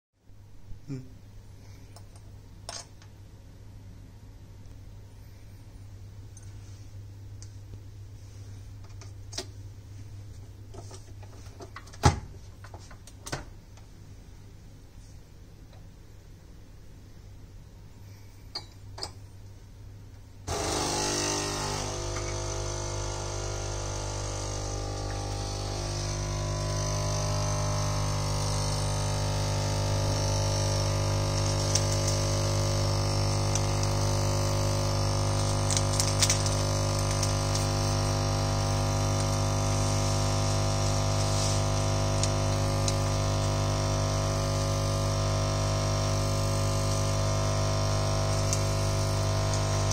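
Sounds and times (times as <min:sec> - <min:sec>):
coffee machine pump humming: 0:20.5 - 0:49.9.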